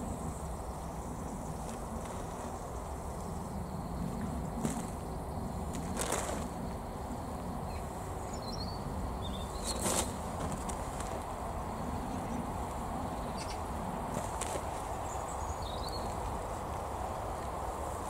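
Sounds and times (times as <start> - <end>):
hands sifting compost on tarp: 5.6 - 6.6, 9.6 - 11.4
faint bird chirps: 7.6 - 9.8.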